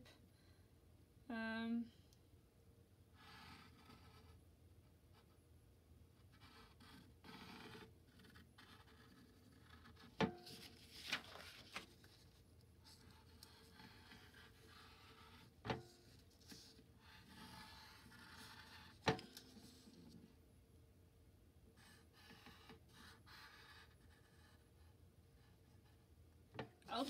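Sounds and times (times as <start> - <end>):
marker pen scratching on paper: 3.2 - 4.5, 6.2 - 11.0, 12.0 - 20.2, 21.8 - 26.1.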